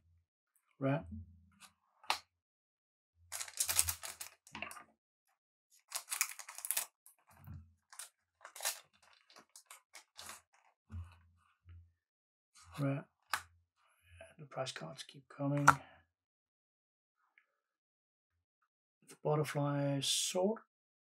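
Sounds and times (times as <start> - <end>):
cards clicking and rustling: 3.3 - 4.4, 5.9 - 6.9, 8.0 - 10.7
wrapper tearing and crinkling: 3.4 - 4.4, 5.9 - 6.9, 8.0 - 10.4.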